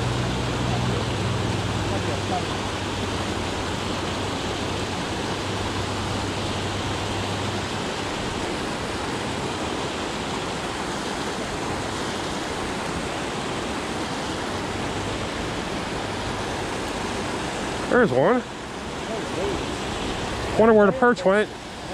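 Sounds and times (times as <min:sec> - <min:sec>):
water rushing over a spillway: 0:00.0 - 0:21.9.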